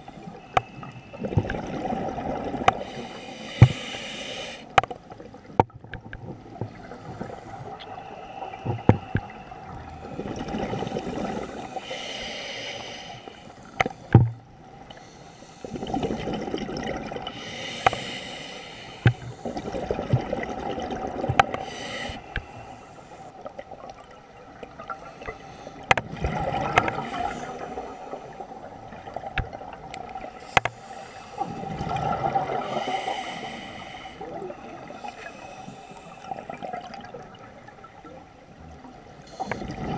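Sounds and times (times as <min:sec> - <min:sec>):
bubbles gurgling underwater: 0:01.2 - 0:02.8, 0:10.0 - 0:11.6, 0:15.7 - 0:17.3, 0:19.5 - 0:21.5, 0:26.0 - 0:27.3, 0:31.5 - 0:32.7, 0:36.4 - 0:39.9
regulator inhalation hiss: 0:02.8 - 0:04.7, 0:11.5 - 0:13.8, 0:17.4 - 0:19.5, 0:21.6 - 0:23.3, 0:30.4 - 0:31.7, 0:32.6 - 0:36.6.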